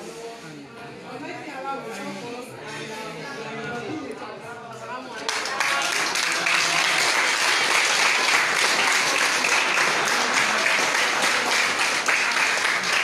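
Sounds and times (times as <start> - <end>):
crowd applauding: 5.3 - 13.0.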